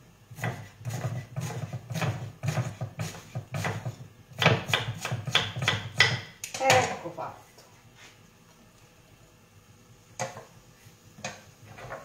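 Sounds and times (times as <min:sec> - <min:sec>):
knife chopping on wooden board: 0:00.4 - 0:06.3.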